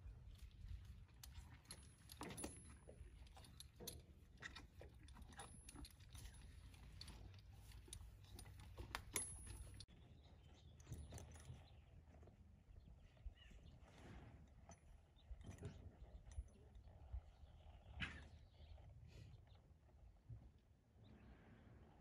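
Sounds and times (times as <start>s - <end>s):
bridle hardware jingling: 0.6s - 9.9s.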